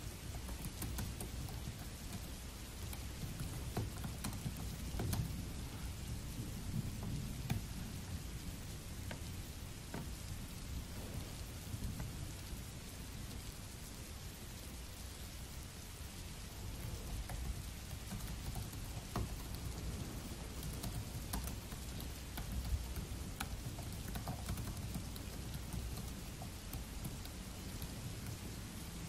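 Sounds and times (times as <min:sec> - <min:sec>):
laptop keyboard typing: 0:00.0 - 0:06.0, 0:06.8 - 0:07.8, 0:16.6 - 0:29.0
steady rain falling: 0:00.0 - 0:29.0.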